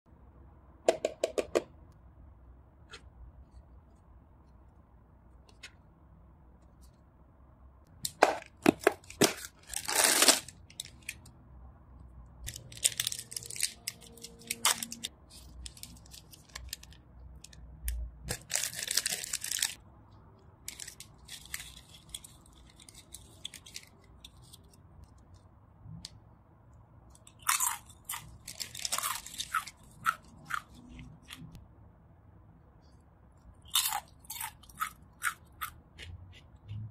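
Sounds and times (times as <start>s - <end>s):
snack bag crinkling: 9.0s - 11.2s, 12.5s - 17.6s, 18.3s - 19.8s, 20.6s - 24.8s, 27.4s - 31.4s.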